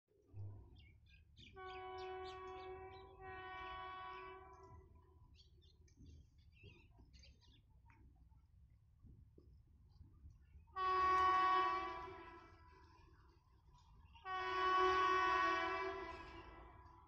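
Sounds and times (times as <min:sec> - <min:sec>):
distant locomotive horn blasts: 0:01.4 - 0:04.9, 0:10.8 - 0:13.0, 0:14.2 - 0:17.0.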